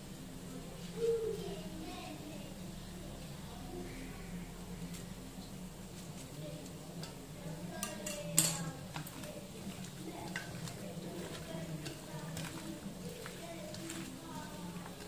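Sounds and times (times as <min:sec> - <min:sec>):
knife tapping steel bowl: 0:07.8 - 0:09.2.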